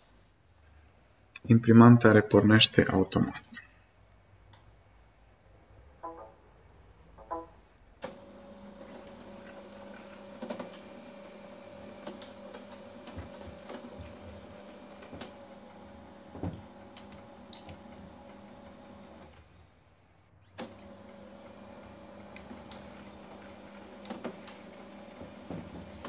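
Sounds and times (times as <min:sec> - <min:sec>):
printer tone: 0:08.1 - 0:19.3, 0:20.6 - 0:26.0
printer motors running: 0:08.1 - 0:19.4, 0:20.6 - 0:26.0.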